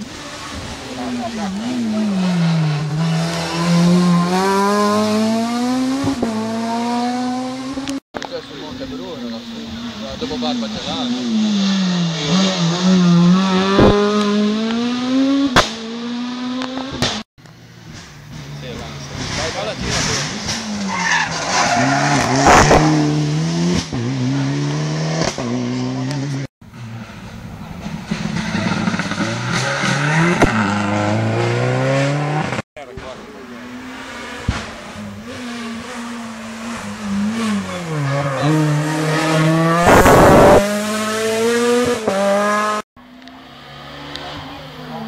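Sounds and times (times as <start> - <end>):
rally car engine accelerating: 0.0 - 8.0, 8.8 - 17.2, 18.0 - 45.0.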